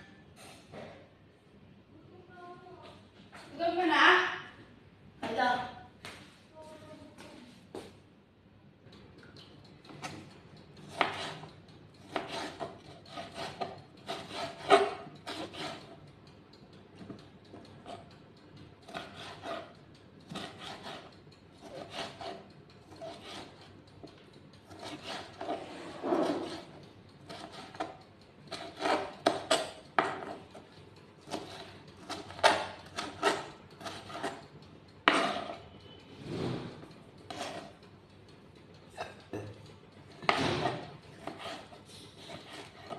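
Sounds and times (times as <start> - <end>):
knife scraping strokes: 10.8 - 16.0, 18.8 - 23.7, 24.6 - 30.6, 31.2 - 34.4, 35.1 - 37.8, 40.2 - 42.9.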